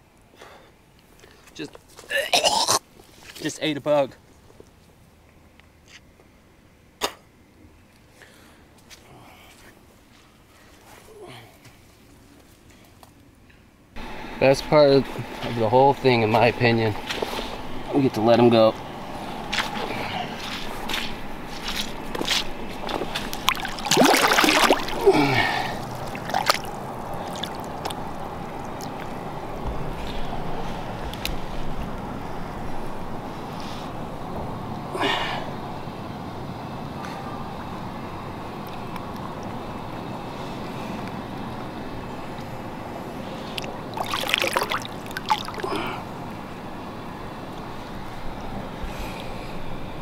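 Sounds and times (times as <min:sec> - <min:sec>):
steady background noise: 0:00.0 - 0:50.0
water sloshing and dripping: 0:19.5 - 0:30.2, 0:43.5 - 0:46.0
fish splashing in water: 0:22.7 - 0:29.2, 0:43.5 - 0:46.0.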